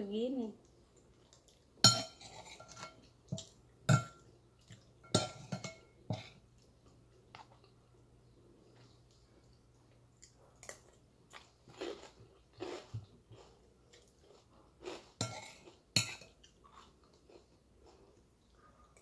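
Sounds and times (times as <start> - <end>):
person chewing and crunching: 8.8 - 18.5.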